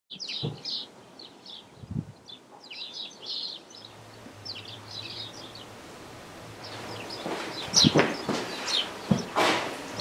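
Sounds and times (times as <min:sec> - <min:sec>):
small birds chirping: 0:00.1 - 0:10.0
low steady hum: 0:03.5 - 0:10.0.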